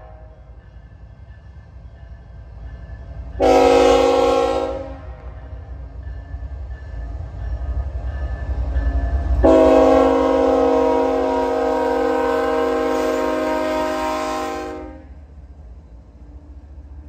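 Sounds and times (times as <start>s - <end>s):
locomotive air horn blasts: 0.0s - 0.3s, 3.4s - 5.4s, 9.4s - 15.2s
locomotive engine and wheels rumbling: 0.0s - 17.0s.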